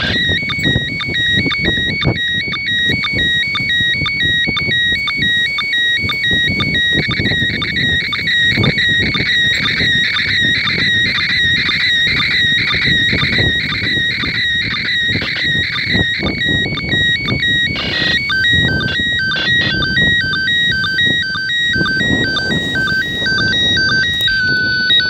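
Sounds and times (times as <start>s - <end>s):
radio data tone stepping in pitch: 0.0s - 25.0s.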